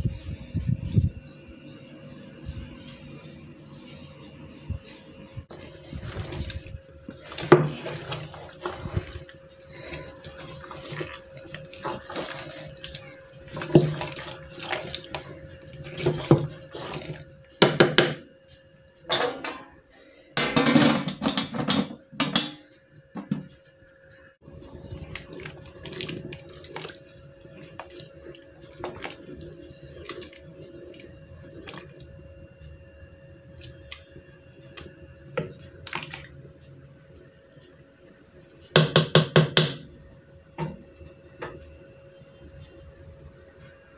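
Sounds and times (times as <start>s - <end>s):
wooden spoon stirring tomatoes: 5.5s - 17.6s, 24.4s - 32.4s
tomatoes stewing: 5.5s - 18.0s, 24.4s - 37.4s.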